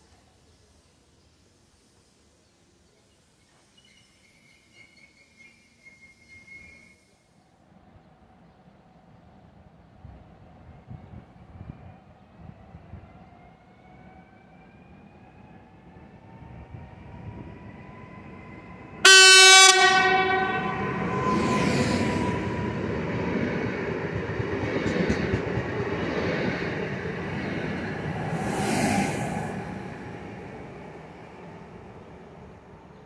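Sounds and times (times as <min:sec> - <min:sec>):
electric train whine: 0:10.9 - 0:33.0
train horn blast: 0:19.0 - 0:22.3.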